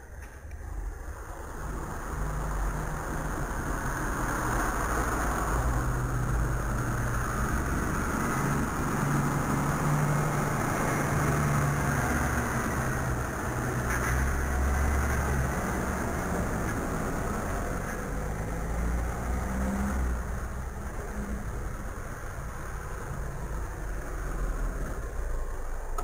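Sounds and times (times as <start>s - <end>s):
tractor diesel engine drone: 0.0s - 26.0s.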